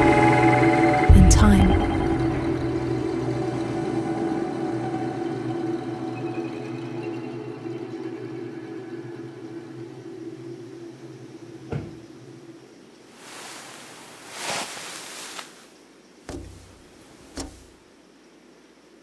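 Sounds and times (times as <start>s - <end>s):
low drone: 0.0s - 10.6s
rustle of bedding: 13.0s - 17.8s
hands knocking on window pane: 16.3s - 17.7s
soft thump: 16.3s - 17.8s.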